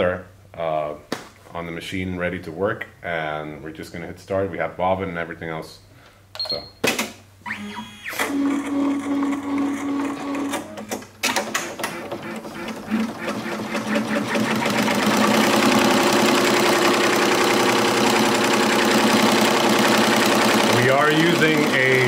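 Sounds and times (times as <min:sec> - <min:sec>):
embroidery machine whine and hum: 0:07.5 - 0:11.0, 0:11.8 - 0:22.0.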